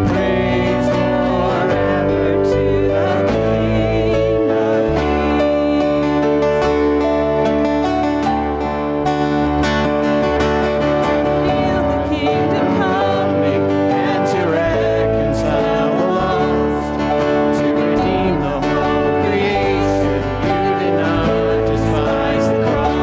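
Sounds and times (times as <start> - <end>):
person singing: 0.0 - 23.0
strummed acoustic guitar: 0.0 - 23.0.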